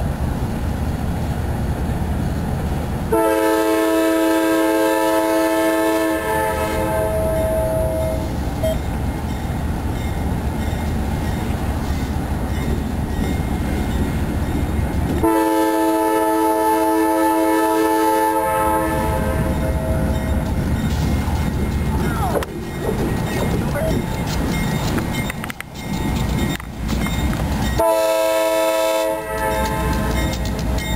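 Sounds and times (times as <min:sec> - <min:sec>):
diesel locomotives rumbling: 0:00.0 - 0:30.9
multi-tone air horn: 0:03.1 - 0:08.2, 0:15.2 - 0:19.5, 0:27.8 - 0:30.1.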